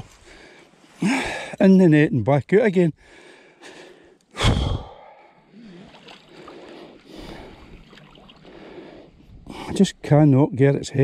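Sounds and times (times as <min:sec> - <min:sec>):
water lapping: 0:05.4 - 0:09.5.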